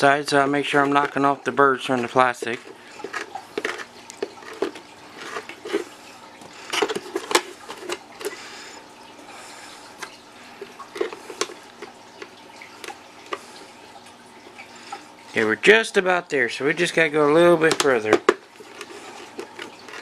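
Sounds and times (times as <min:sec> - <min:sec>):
reaming tool scraping plastic: 0:01.9 - 0:08.8, 0:10.6 - 0:13.6, 0:17.6 - 0:20.0.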